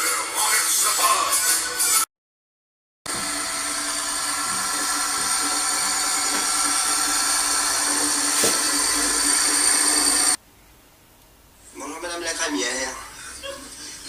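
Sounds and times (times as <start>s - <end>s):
small electric motor whining: 3.1s - 10.4s.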